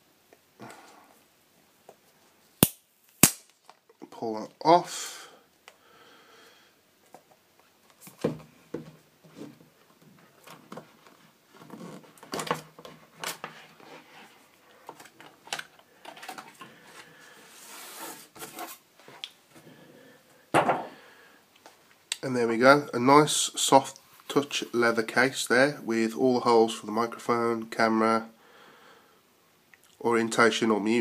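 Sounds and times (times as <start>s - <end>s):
cardboard rubbing and scraping: 17.5s - 18.8s.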